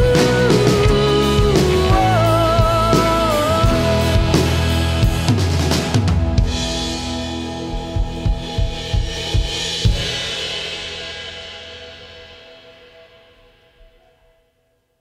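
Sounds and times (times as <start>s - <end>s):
drum hits: 0.0s - 11.5s
rock song: 0.0s - 13.4s
drum kit playing: 0.0s - 14.0s.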